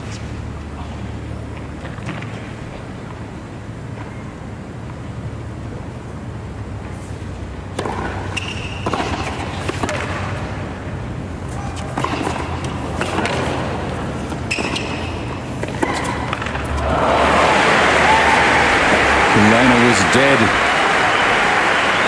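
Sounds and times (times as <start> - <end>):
low crowd hum: 0.0 - 22.0
tennis ball struck with rackets: 7.8 - 10.5, 11.7 - 16.8
crowd applause: 16.7 - 22.0.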